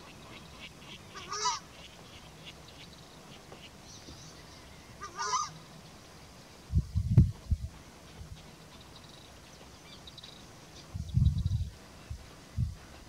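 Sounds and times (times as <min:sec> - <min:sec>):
bird honking call: 0:00.0 - 0:02.6, 0:05.0 - 0:05.6.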